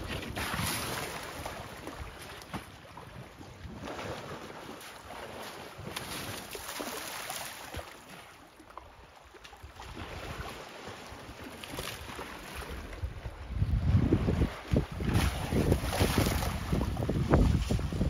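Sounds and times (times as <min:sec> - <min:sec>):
elephants splashing in mud: 0:03.7 - 0:08.2, 0:09.8 - 0:12.9, 0:14.3 - 0:18.0.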